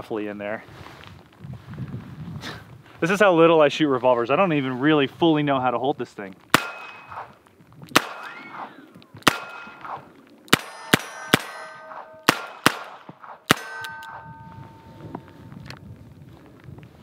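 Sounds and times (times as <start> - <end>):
revolver shots: 6.5 - 7.3, 7.9 - 15.2
steel targets clanging: 10.6 - 12.6, 13.5 - 15.4.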